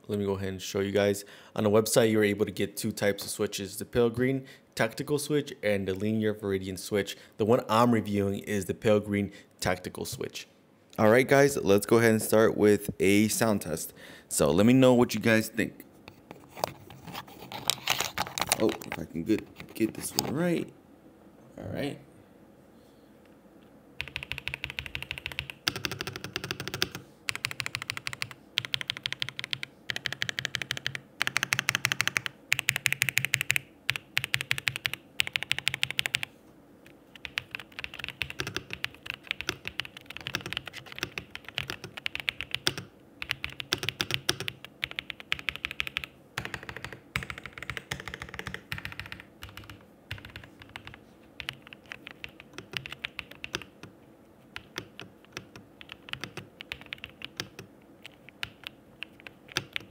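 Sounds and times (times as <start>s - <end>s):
mechanical keyboard typing: 24.0s - 36.3s, 37.1s - 53.9s, 54.6s - 59.9s.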